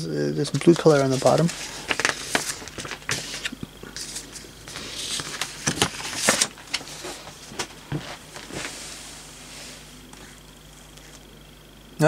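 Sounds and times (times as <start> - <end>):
paper sheets rustling: 0.4 - 9.2.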